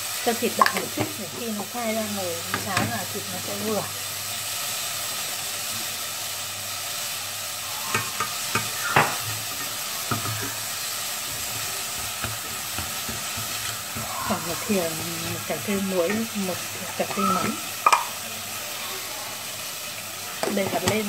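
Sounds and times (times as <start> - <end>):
meat sizzling in a pot: 0.0 - 21.0
chopsticks scraping a pot: 11.3 - 16.4.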